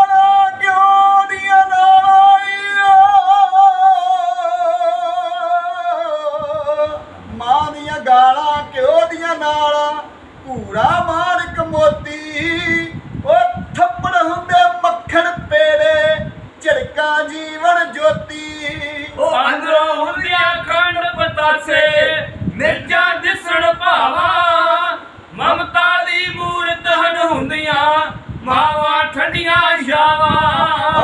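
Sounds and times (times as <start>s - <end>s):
man singing unaccompanied: 0.0s - 31.0s.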